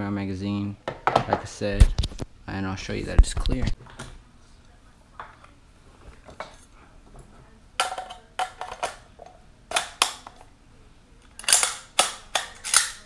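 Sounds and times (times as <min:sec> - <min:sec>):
rifle action metallic clacks: 0:11.3 - 0:13.0.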